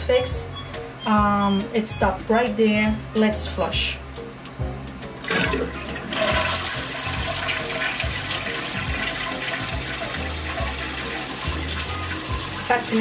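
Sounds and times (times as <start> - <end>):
toilet flushing: 5.2 - 13.0.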